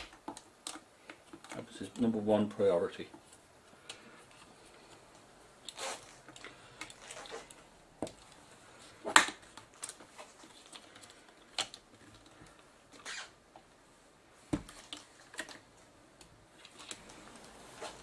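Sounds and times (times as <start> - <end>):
plastic parts clicking and knocking: 0.0 - 2.2, 9.1 - 13.7, 14.5 - 17.5.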